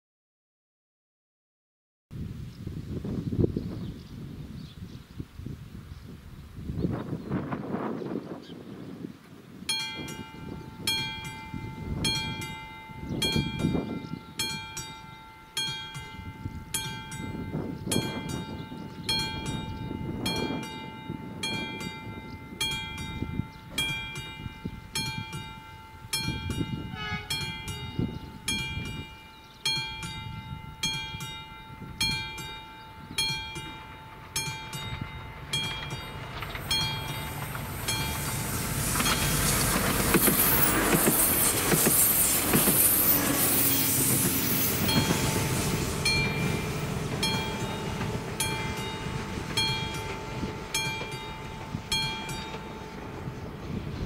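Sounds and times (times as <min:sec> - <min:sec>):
level crossing bell ringing: 0:09.7 - 0:39.5, 0:43.7 - 0:54.0
approaching train rushing: 0:09.7 - 0:54.0.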